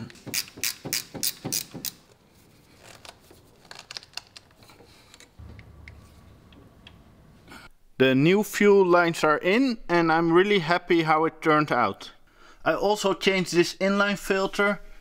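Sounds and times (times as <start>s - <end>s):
low hum: 5.4s - 7.7s.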